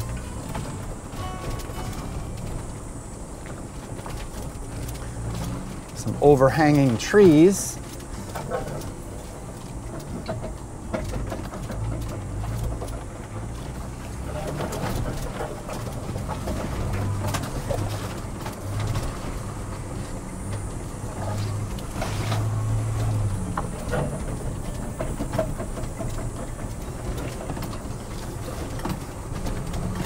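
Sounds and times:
low engine rumble: 0:00.0 - 0:30.0
tyres crunching on gravel: 0:00.0 - 0:30.0.

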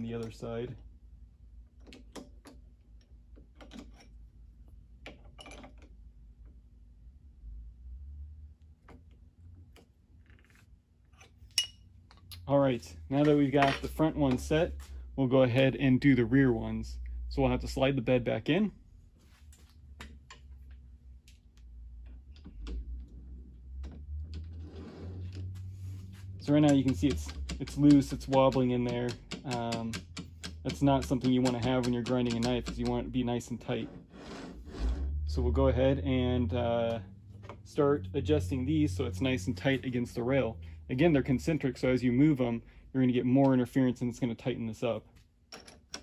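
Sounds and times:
hand tools clicking on metal: 0:26.5 - 0:33.1
metal tapping on metal: 0:26.6 - 0:33.0.

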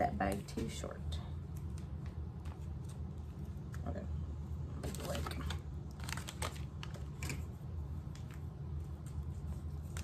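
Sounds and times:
steady low hum: 0:00.0 - 0:10.0
plastic bag crinkling: 0:04.8 - 0:07.6.

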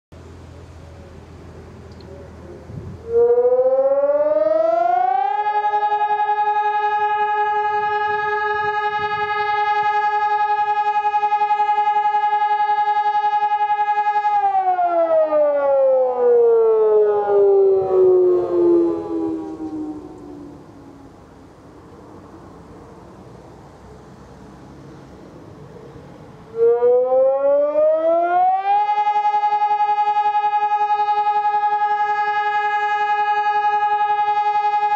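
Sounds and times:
electronic siren fluttering tone: 0:02.8 - 0:21.1, 0:26.5 - 0:34.9.

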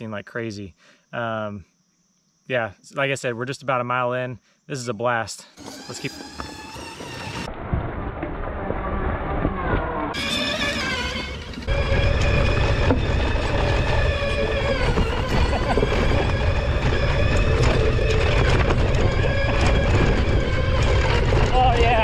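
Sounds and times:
wind rumbling on microphone: 0:11.5 - 0:22.0.

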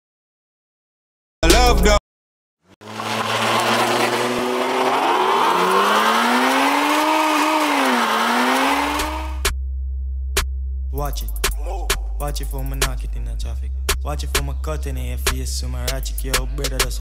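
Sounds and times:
hip-hop track: 0:01.4 - 0:02.0, 0:10.4 - 0:17.0
engine revving sound effect: 0:02.8 - 0:09.5
deep bass tone: 0:09.4 - 0:16.3.

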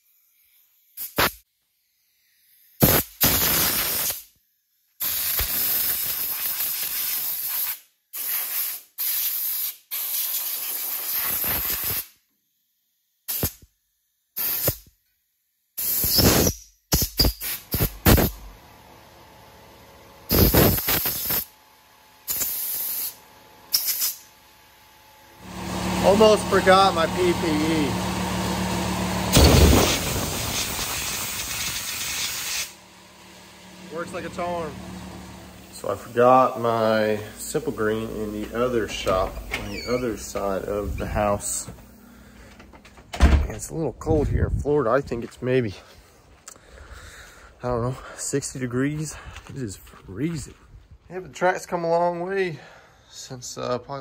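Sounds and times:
compressed air hissing bursts: 0:00.2 - 0:04.4, 0:05.0 - 0:12.2, 0:13.2 - 0:13.7, 0:14.3 - 0:14.9, 0:15.8 - 0:18.4, 0:20.3 - 0:21.5, 0:22.2 - 0:24.3, 0:29.3 - 0:42.4.

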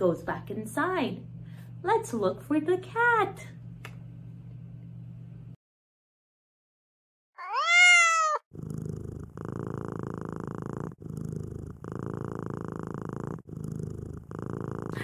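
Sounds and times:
cat meowing: 0:07.4 - 0:08.5
cat purring: 0:08.4 - 0:15.0.

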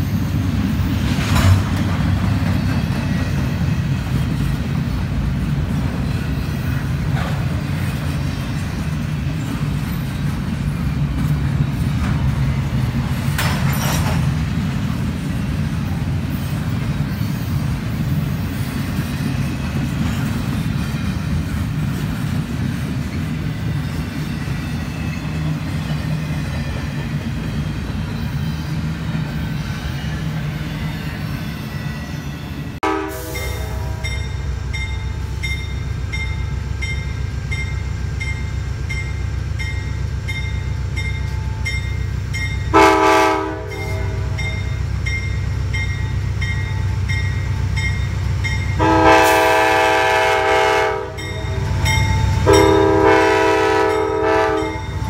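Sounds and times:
diesel locomotive engine rumble: 0:00.0 - 0:55.0
freight train rumbling on rails: 0:00.0 - 0:55.0
locomotive bell ringing: 0:23.4 - 0:55.0.

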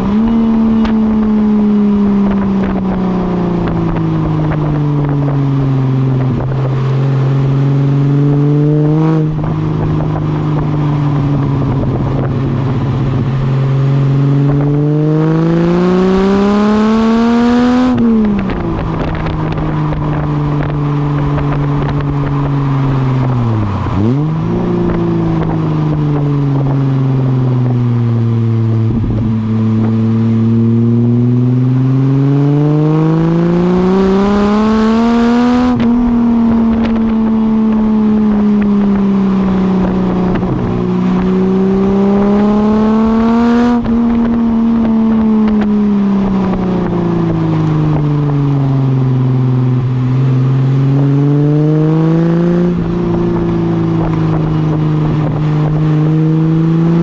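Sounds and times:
car engine revving: 0:00.0 - 0:57.0.

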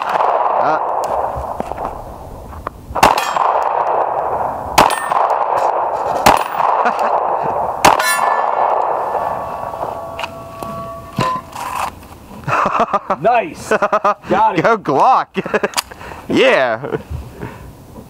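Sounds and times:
pistol shots: 0:00.0 - 0:01.9, 0:03.0 - 0:10.6
steel target clanging: 0:03.0 - 0:03.7, 0:04.8 - 0:05.4, 0:07.8 - 0:11.9.

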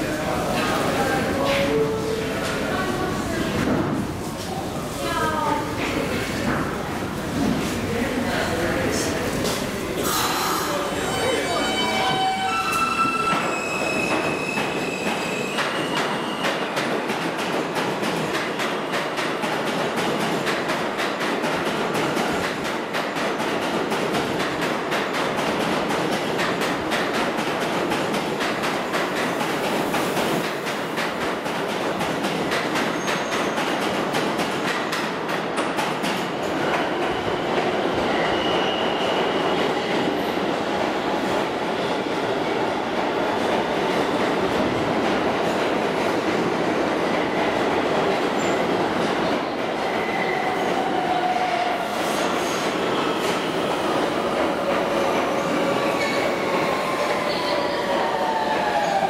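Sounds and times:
train wheel-on-rail rumble: 0:00.0 - 0:59.0
train braking whine and squeal: 0:10.1 - 0:16.6, 0:36.8 - 0:39.8.

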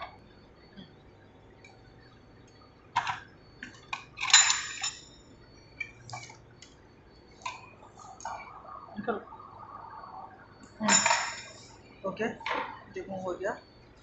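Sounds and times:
metal parts clinking and clattering: 0:04.2 - 0:05.1, 0:10.9 - 0:11.7.

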